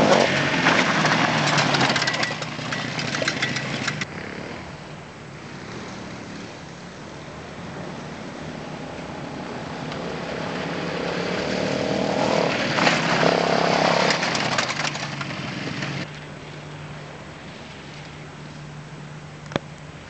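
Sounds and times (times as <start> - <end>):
quad bike engine passing: 0.0 - 6.9, 7.5 - 16.1.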